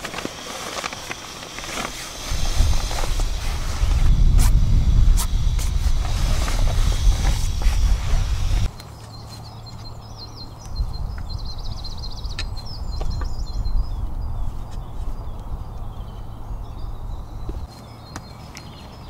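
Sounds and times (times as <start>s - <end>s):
songbirds chirping and trilling: 8.4s - 19.0s.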